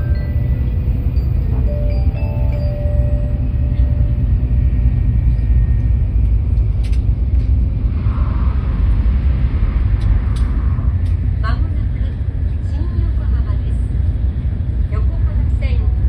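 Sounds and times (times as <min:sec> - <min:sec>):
arrival chime: 0:00.0 - 0:04.6
train rumble inside carriage: 0:00.0 - 0:16.0.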